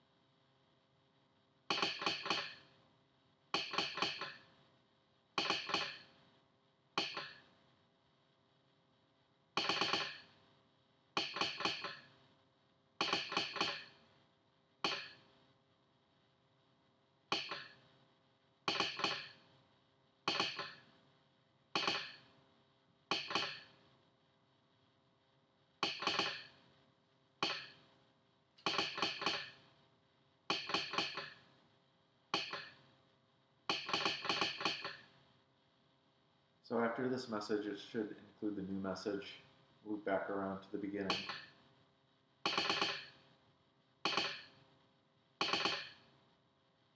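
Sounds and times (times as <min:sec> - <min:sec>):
telegraph sounder clacking: 0:17.3 - 0:17.8, 0:21.8 - 0:22.2, 0:41.0 - 0:41.5, 0:42.5 - 0:43.1, 0:44.1 - 0:44.5, 0:45.4 - 0:46.0.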